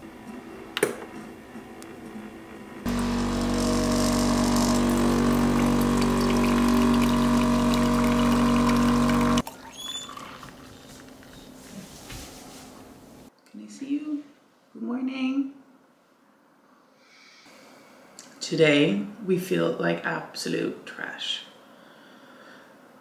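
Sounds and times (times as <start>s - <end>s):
espresso machine pump buzzing: 1.2s - 11.1s.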